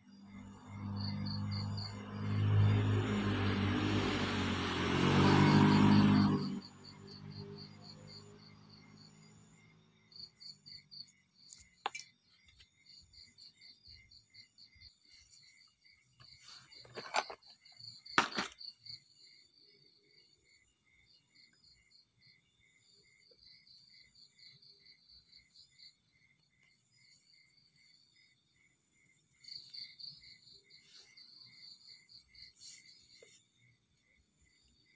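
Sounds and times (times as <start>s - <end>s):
insects chirping: 0.0s - 34.9s
wooden pieces knocking: 18.2s - 18.6s.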